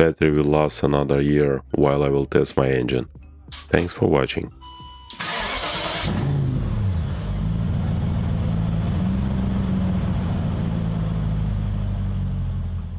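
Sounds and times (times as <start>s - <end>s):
car engine idling: 5.2s - 12.9s.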